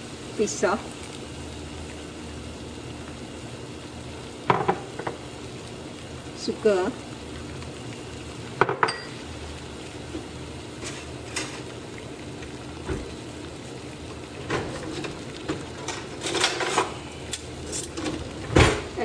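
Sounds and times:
broth simmering and bubbling: 0.0s - 19.0s.

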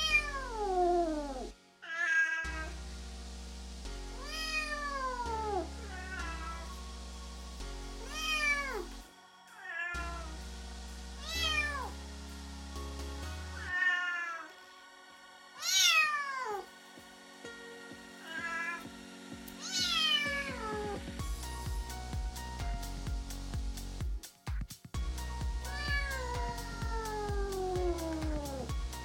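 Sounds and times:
kitten meowing: 1.8s - 2.6s.

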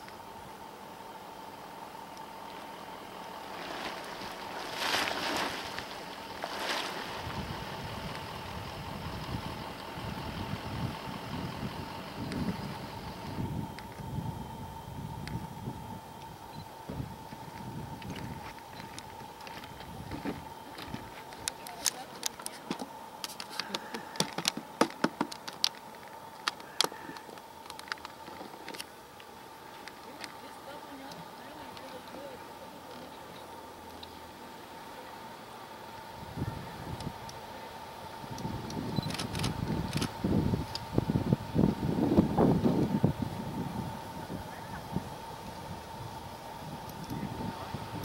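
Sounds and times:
wind buffeting microphone: 7.1s - 21.1s, 38.2s - 48.0s.

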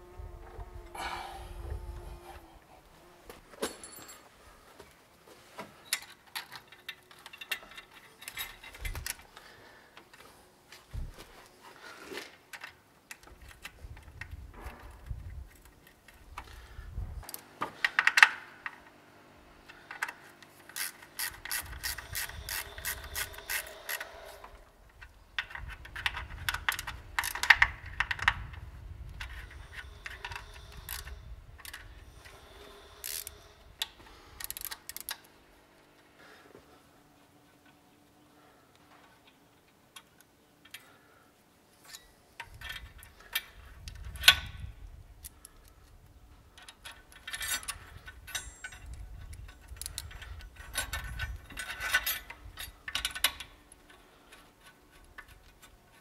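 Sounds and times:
ratchet wrench clicking: 20.7s - 24.1s, 26.1s - 28.2s, 29.3s - 31.8s, 33.0s - 33.4s, 34.4s - 35.2s.

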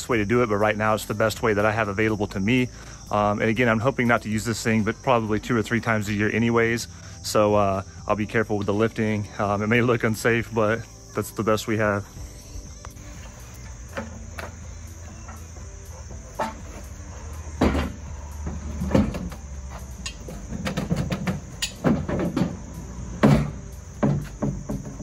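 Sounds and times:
insect chirring: 0.0s - 25.0s
metal clanks and knocks: 13.9s - 14.6s, 15.2s - 25.0s.

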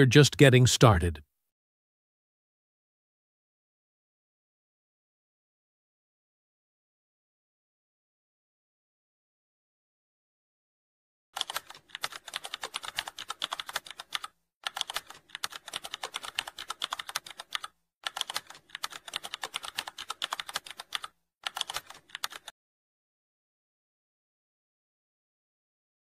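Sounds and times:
fast keyboard typing: 11.4s - 22.5s.

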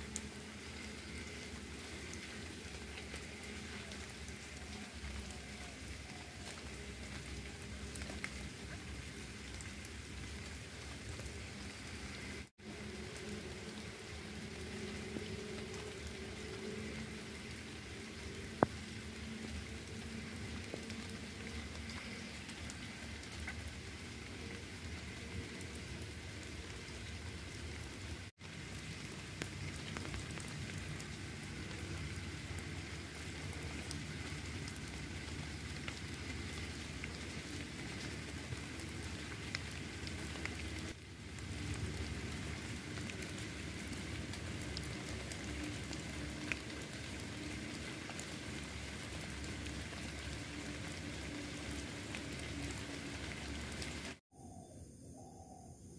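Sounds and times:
light rain pattering: 0.0s - 54.2s.

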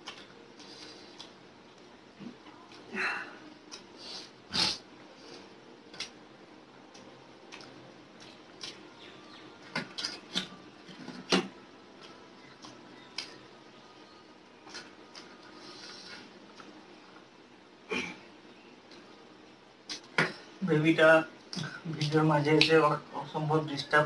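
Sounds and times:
lip smacks and chewing clicks: 0.0s - 1.4s, 6.9s - 8.8s.

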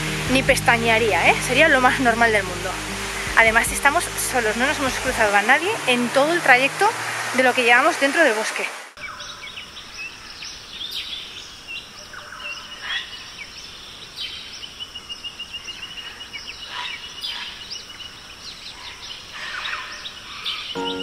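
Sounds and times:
steady background hiss: 0.0s - 19.3s
songbirds chirping: 9.0s - 21.0s.

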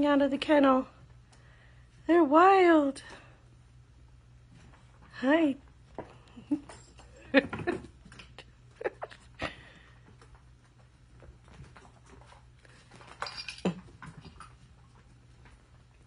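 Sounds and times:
small paws thumping and scrabbling: 4.3s - 16.0s.

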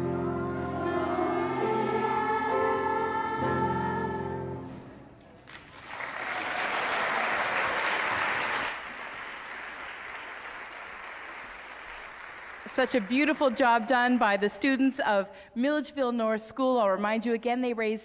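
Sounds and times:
children's choir singing: 0.0s - 5.0s
audience applause: 5.4s - 14.5s.

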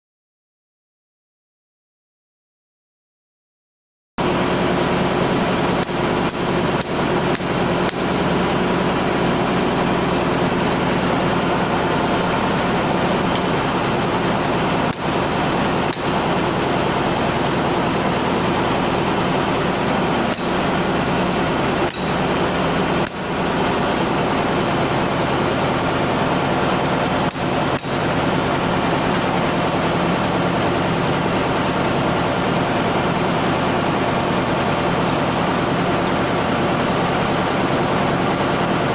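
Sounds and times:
machinery drone: 4.2s - 38.9s
spanners clinking on metal: 5.8s - 8.2s, 14.8s - 16.6s, 19.0s - 24.0s, 26.3s - 28.7s.

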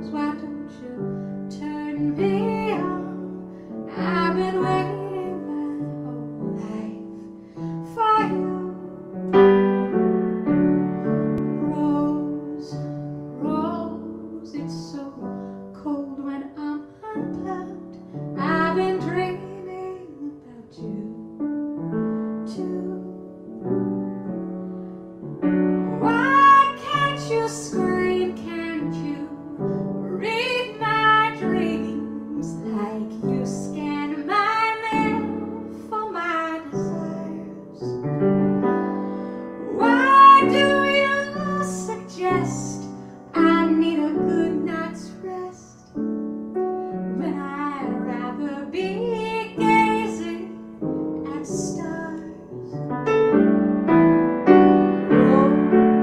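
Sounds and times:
woman singing jazz: 0.0s - 7.2s, 7.8s - 9.5s, 11.4s - 21.6s, 22.4s - 23.8s, 25.8s - 46.0s, 47.0s - 52.8s, 55.0s - 56.0s
grand piano: 0.0s - 56.0s.

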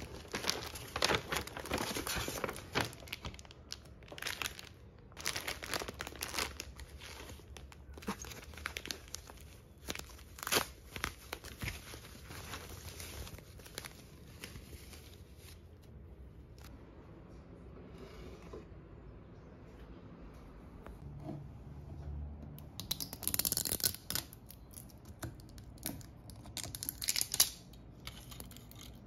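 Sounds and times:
plastic packaging crinkling: 0.0s - 15.6s.

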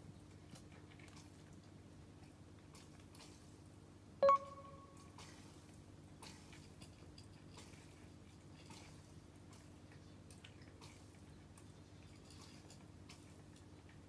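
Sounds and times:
cat crunching food: 0.4s - 3.3s.

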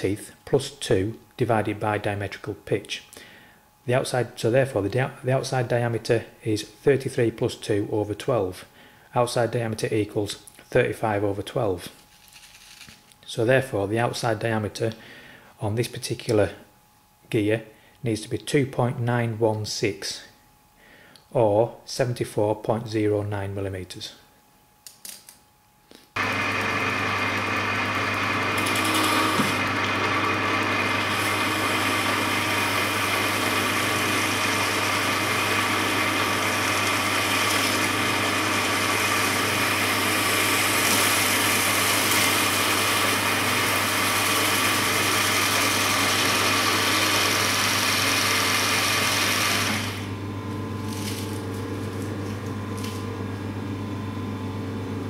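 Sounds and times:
lathe tool cutting hiss: 26.2s - 50.1s
lathe motor hum: 26.2s - 53.0s.

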